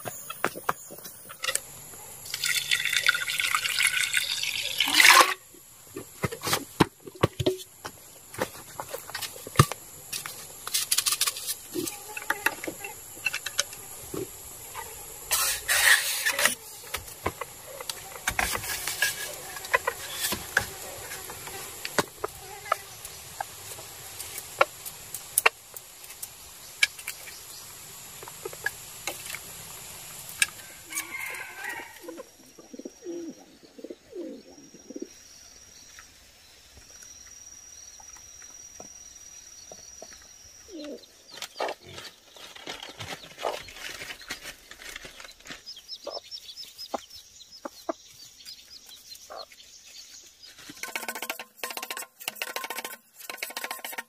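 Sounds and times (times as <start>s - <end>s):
chickens clucking: 17.0s - 21.0s, 43.3s - 43.7s, 46.0s - 49.6s
rooster crowing: 30.6s - 32.2s.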